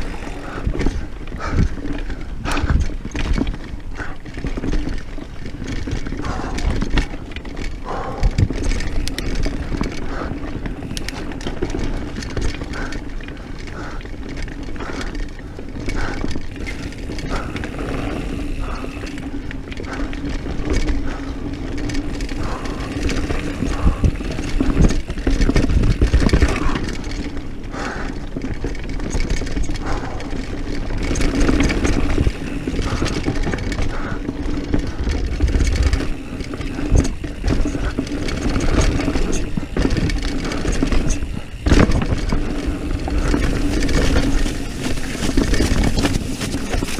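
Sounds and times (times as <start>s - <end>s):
wind noise on microphone: 0.0s - 4.8s, 21.8s - 27.8s, 28.6s - 46.9s
bike knocks and rattles: 0.0s - 46.9s
bike tyres rumbling on dirt: 0.0s - 46.9s.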